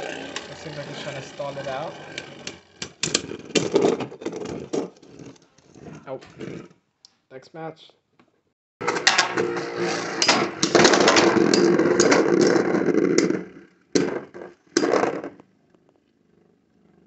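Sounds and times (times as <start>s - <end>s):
spinning tops whirring and clashing: 0.0s - 4.0s.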